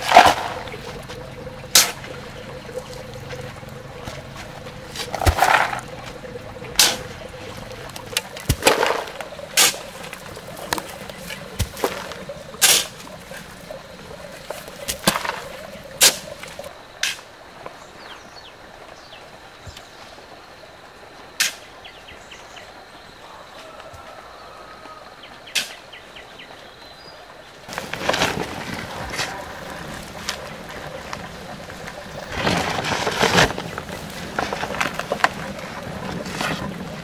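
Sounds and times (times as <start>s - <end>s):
shovel scooping sand: 0.0s - 2.1s, 4.1s - 17.3s, 27.7s - 37.0s.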